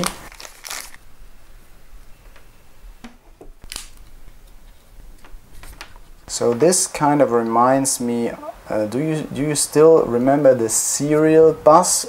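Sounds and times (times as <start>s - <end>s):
cable handling noise: 3.0s - 6.7s.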